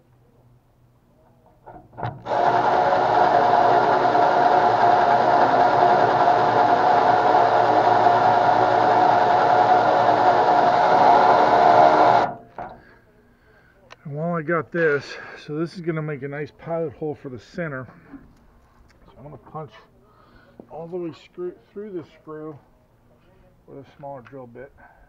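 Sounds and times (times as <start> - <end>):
power drill whining: 2.1 - 12.8.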